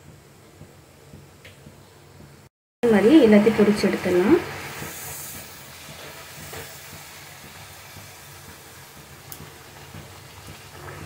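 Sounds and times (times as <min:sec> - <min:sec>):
food sizzling in hot oil: 0:02.8 - 0:11.0.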